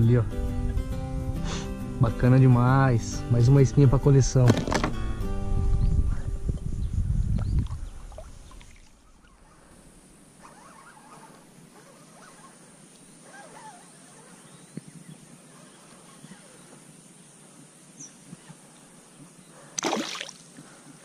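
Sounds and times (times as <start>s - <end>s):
light knocks on hull: 4.5s - 5.0s
faint chirping: 5.7s - 19.8s.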